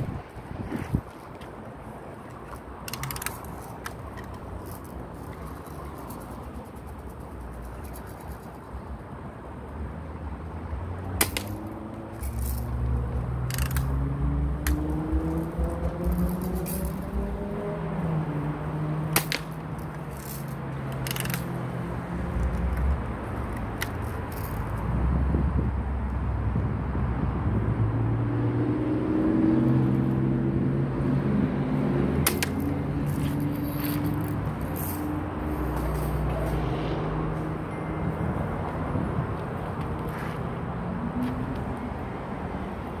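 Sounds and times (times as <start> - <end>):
wind rumble on microphone: 0.0 - 1.9, 21.6 - 31.6, 32.8 - 40.1.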